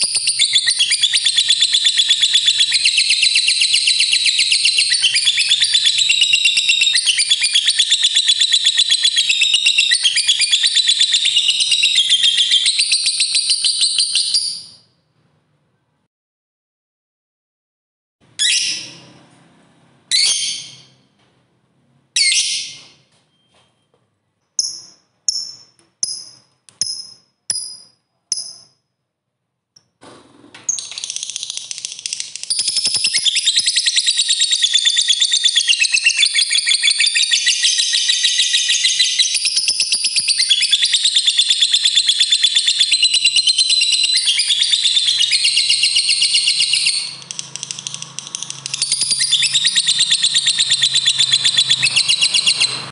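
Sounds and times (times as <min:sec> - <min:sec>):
lovebird short high chirps: 0:30.7 - 0:52.9
lovebird rapid chattering trill: 0:30.8 - 0:37.2, 0:37.9 - 0:52.9.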